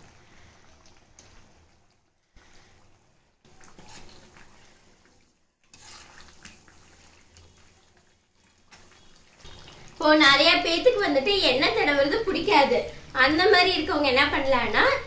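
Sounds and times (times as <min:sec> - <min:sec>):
leaves bubbling in hot oil: 0:00.0 - 0:15.0
metal ladle scraping: 0:03.5 - 0:04.8, 0:05.6 - 0:07.2.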